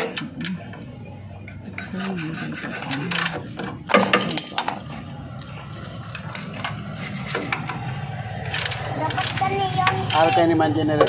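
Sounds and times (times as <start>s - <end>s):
ratchet wrench clicking: 8.5s - 10.5s.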